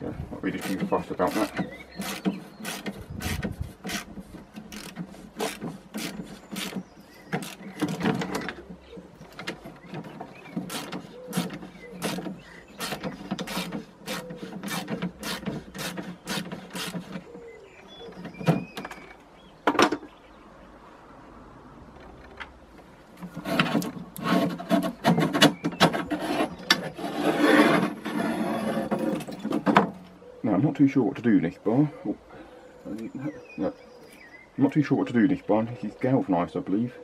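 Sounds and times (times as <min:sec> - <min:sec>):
hand tools clicking on metal: 0:00.5 - 0:17.3.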